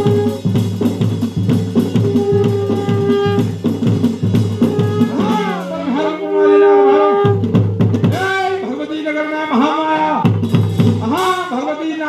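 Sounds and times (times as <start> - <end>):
dhol drumming fast rhythm: 0.0 - 12.0
held tone with pitch slides: 4.5 - 7.9.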